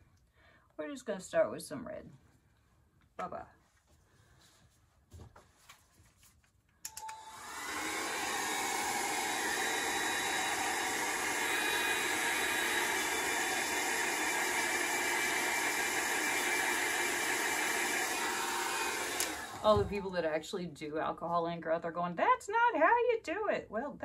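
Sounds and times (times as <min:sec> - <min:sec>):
hair dryer switch click: 0:06.9 - 0:07.7, 0:19.0 - 0:19.6
hair dryer blowing: 0:06.9 - 0:20.4.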